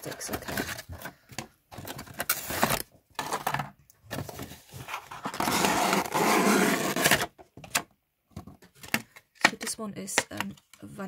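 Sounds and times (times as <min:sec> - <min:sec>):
cardboard box flaps scraping: 0:05.3 - 0:07.2.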